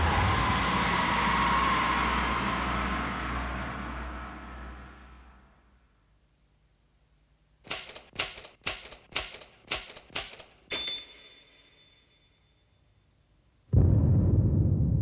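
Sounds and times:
typewriter key clacks: 7.6s - 11.3s
typewriter bell ding: 7.7s - 12.8s.

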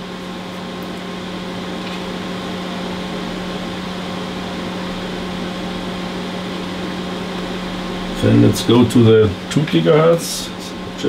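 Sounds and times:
electronics humming: 0.0s - 11.0s
fan-like hiss: 0.0s - 11.0s.

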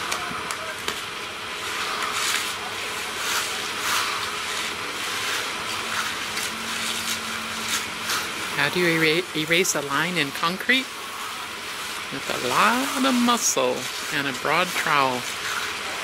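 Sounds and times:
machinery hum: 0.0s - 16.0s
trowel scraping wet concrete: 1.7s - 9.2s, 11.7s - 16.0s.

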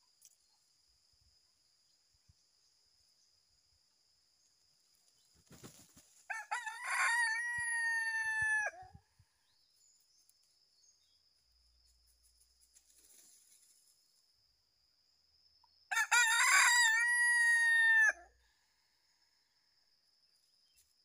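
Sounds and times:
rooster crowing: 6.3s - 9.0s, 15.9s - 18.4s.

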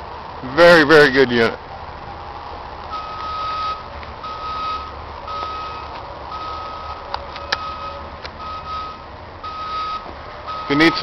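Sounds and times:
vehicle backup alarm beeping: 2.9s - 11.0s.

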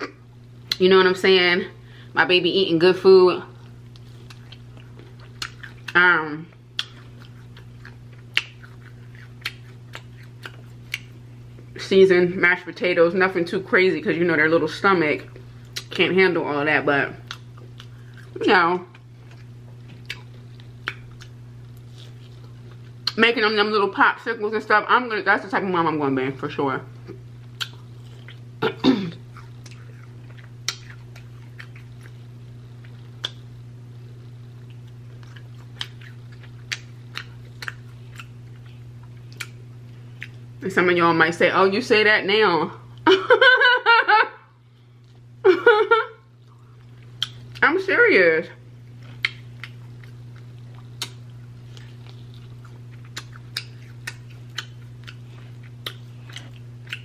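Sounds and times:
steady low hum: 0.0s - 57.0s
person chewing: 3.6s - 6.0s, 6.6s - 11.7s, 17.2s - 23.2s, 27.0s - 40.4s, 46.3s - 47.6s, 48.8s - 57.0s
wet mouth clicks: 27.6s - 28.4s, 33.2s - 33.4s, 51.0s - 51.2s, 53.1s - 55.2s.

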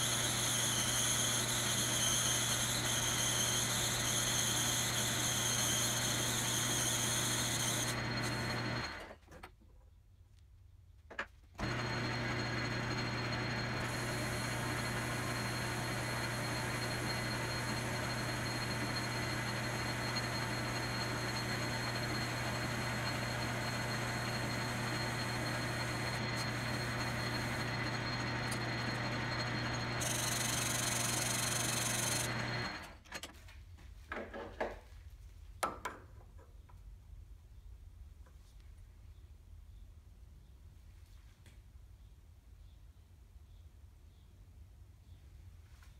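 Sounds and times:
lathe humming: 0.0s - 9.1s, 11.6s - 32.9s.

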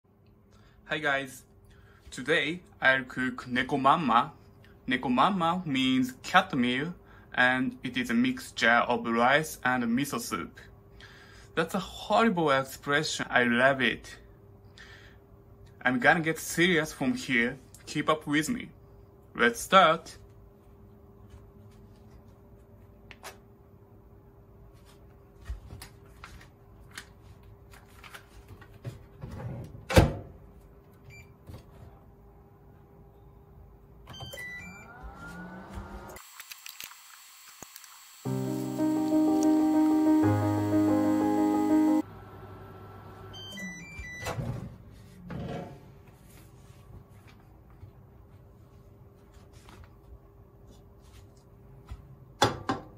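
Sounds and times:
microwave oven humming: 29.2s - 36.2s, 37.2s - 45.1s.

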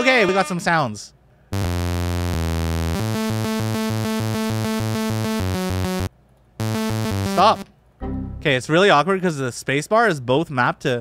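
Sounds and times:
synth chords: 1.6s - 8.6s.

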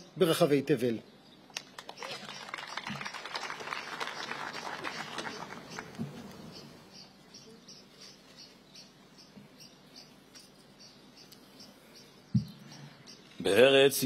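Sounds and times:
scattered applause: 1.6s - 6.3s
small bird chirping: 4.9s - 13.4s.

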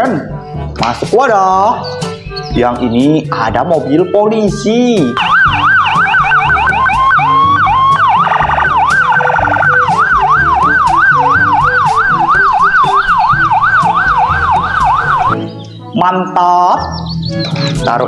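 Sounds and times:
police siren yelping: 5.2s - 15.5s.

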